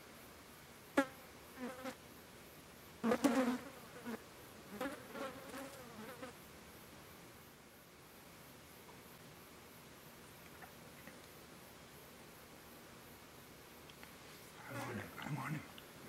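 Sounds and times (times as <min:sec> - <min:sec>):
flying insect buzzing: 0:00.9 - 0:02.0, 0:03.0 - 0:06.4.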